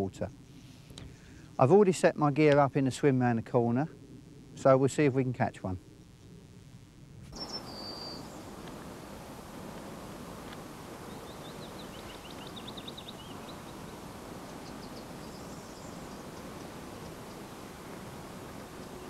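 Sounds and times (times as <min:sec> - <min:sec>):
outdoor background noise: 0:00.0 - 0:19.0
small birds chirping: 0:07.4 - 0:09.2, 0:11.0 - 0:19.0.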